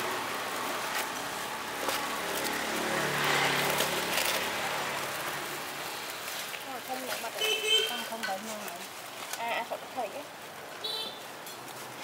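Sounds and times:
vehicle engine passing by: 0.0 - 6.2
street traffic noise: 0.0 - 12.0.

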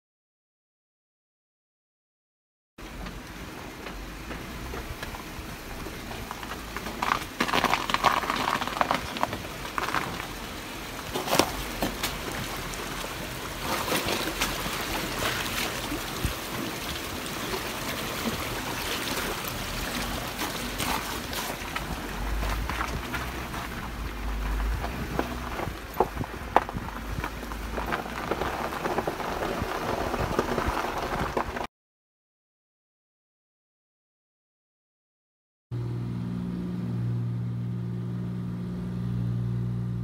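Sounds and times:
creek water rushing: 2.8 - 31.4
water splashes: 4.5 - 31.6.

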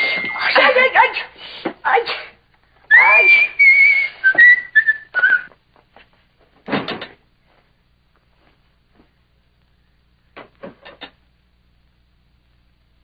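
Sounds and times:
person whistling a tune: 2.9 - 5.5.

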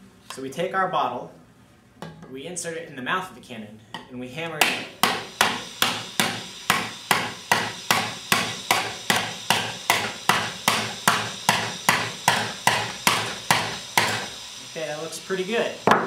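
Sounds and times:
mallet hammering bottle into metal barrel: 4.6 - 14.3.

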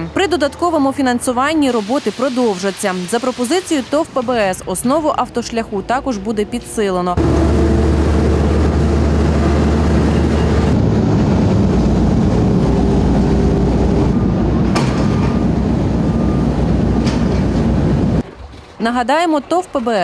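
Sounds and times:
diesel engine droning: 7.1 - 18.2.

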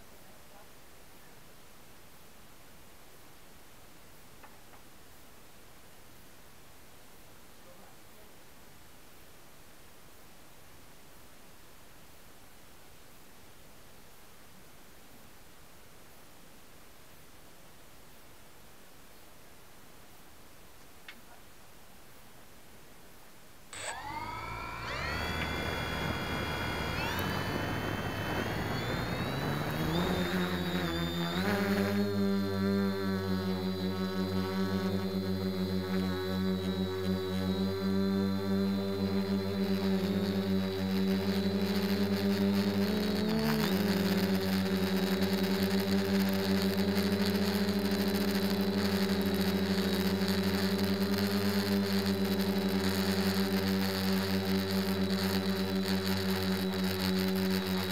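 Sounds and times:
drone propellers whining: 23.8 - 57.9.

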